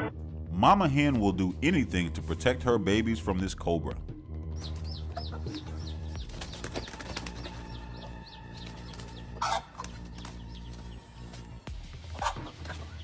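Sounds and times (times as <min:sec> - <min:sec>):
chicks peeping: 0:04.5 - 0:13.0
hen flapping and clucking: 0:06.2 - 0:07.9, 0:08.6 - 0:13.0.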